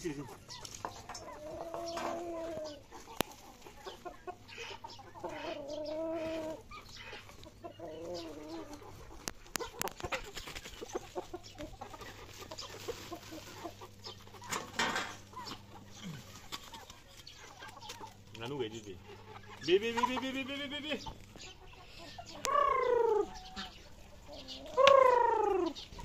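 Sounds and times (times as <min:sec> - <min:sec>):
chickens calling: 0:00.0 - 0:26.0.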